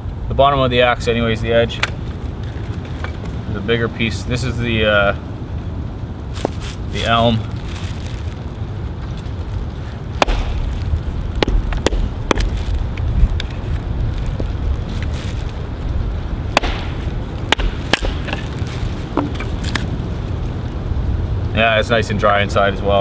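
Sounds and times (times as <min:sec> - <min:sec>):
steady low rumble: 0:00.0 - 0:23.0
axe splitting a log: 0:10.2 - 0:12.7, 0:16.6 - 0:18.6.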